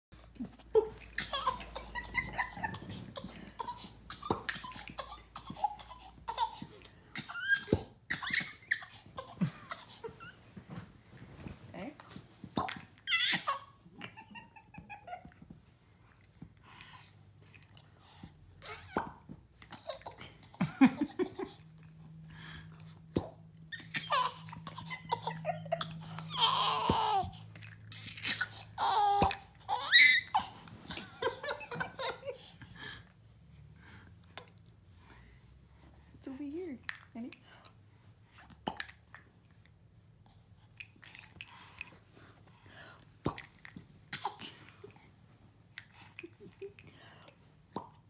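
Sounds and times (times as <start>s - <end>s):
baby laughing: 0.7s - 10.4s, 23.7s - 32.5s.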